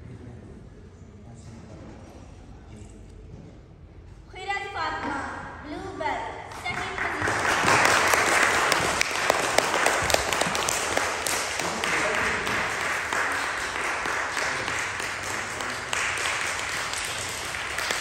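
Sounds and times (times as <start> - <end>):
audience applause: 6.7 - 18.0.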